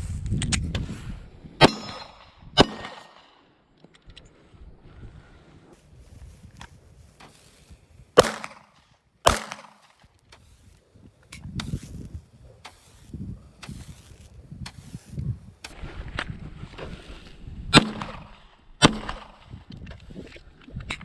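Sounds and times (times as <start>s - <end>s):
pistol shots: 1.6s - 3.4s, 8.2s - 9.9s, 17.7s - 19.5s.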